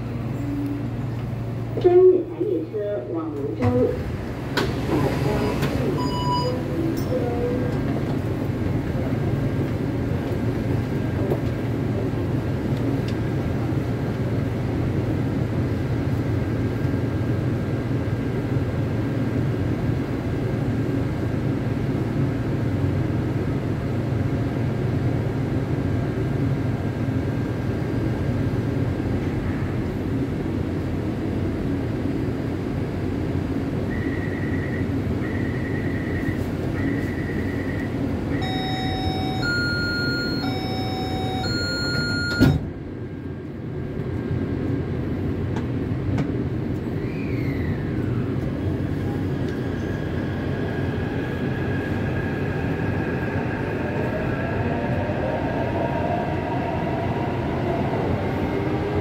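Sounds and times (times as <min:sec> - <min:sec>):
train rumbling through tunnel: 0:00.0 - 0:59.0
short beeps: 0:06.0 - 0:06.7, 0:34.0 - 0:42.7.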